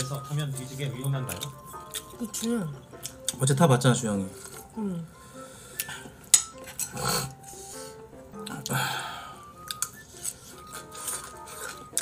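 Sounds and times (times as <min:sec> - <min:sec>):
soft background music: 0:00.0 - 0:12.0
slurping and chewing: 0:01.2 - 0:03.4, 0:05.7 - 0:08.9, 0:09.6 - 0:12.0.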